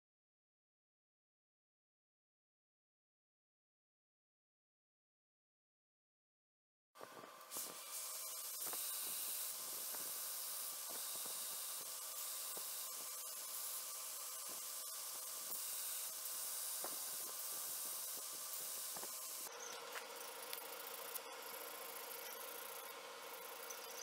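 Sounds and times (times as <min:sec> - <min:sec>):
belt grinder hissing: 0:07.0 - 0:24.0
faint steady hum: 0:07.0 - 0:24.0.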